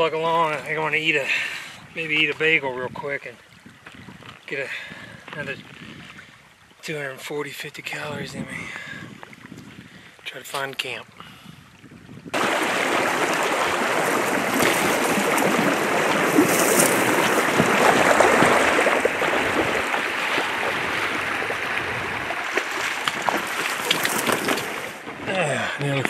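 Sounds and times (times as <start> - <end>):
river water rushing: 12.4 - 26.0.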